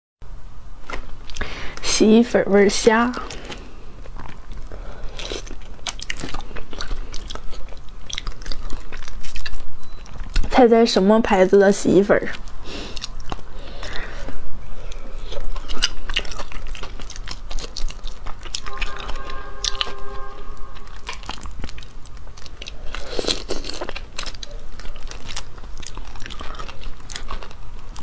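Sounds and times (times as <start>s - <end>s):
crunching and chewing: 0.8s - 1.8s, 3.1s - 18.8s, 21.0s - 28.0s
steady tone: 18.4s - 22.2s.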